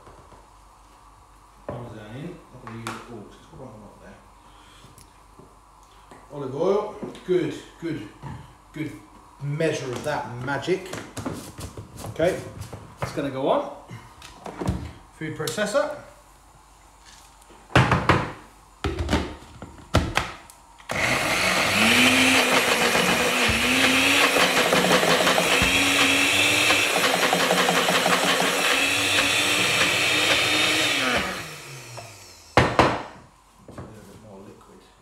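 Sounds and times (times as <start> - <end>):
blender motor running: 20.9 - 32.7.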